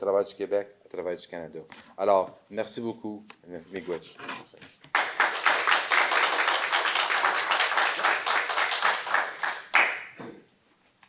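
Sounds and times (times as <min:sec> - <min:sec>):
audience applauding: 0:04.9 - 0:10.2.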